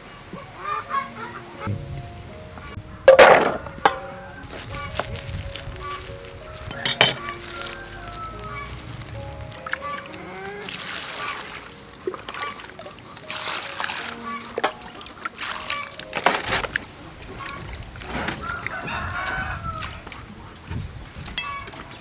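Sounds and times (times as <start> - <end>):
chickens calling: 0.0 - 22.0
rooster crowing: 6.4 - 9.1, 18.2 - 20.0
hands splashing in bowl of water: 8.8 - 16.8.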